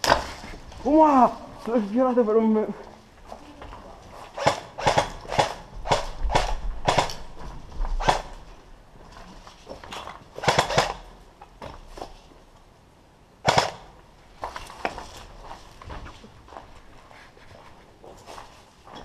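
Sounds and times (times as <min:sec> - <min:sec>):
airsoft gun shots: 0:04.4 - 0:07.2, 0:08.0 - 0:08.4, 0:10.4 - 0:11.0, 0:13.4 - 0:13.9.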